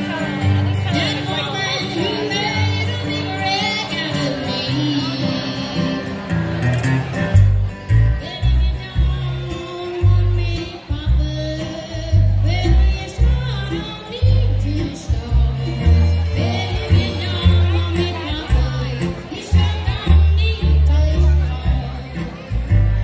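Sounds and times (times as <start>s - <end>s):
strummed acoustic guitar: 0.0s - 23.0s
upright bass plucking: 0.0s - 23.0s
bowed fiddle melody: 7.3s - 23.0s.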